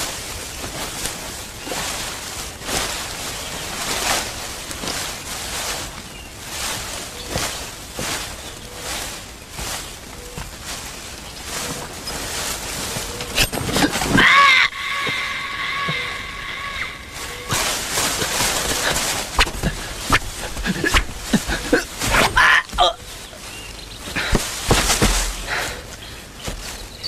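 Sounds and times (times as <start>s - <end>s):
scuffling with sharp knocks: 0.0s - 27.0s.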